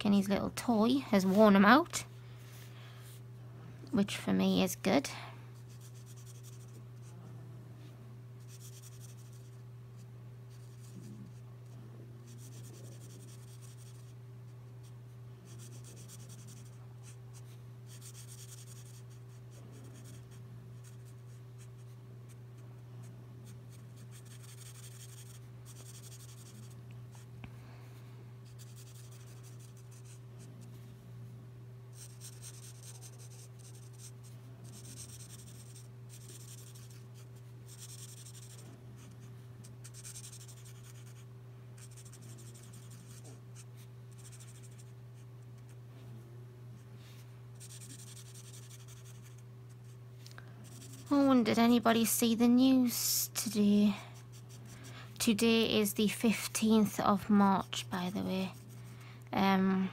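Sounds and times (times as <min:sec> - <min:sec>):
steady low hum: 0:00.0 - 0:59.9
marker rubbing across paper: 0:12.3 - 0:14.1, 0:15.5 - 0:22.0, 0:23.4 - 0:26.8, 0:28.5 - 0:30.2, 0:31.9 - 0:39.2, 0:39.8 - 0:41.2, 0:47.6 - 0:49.8, 0:50.6 - 0:51.1.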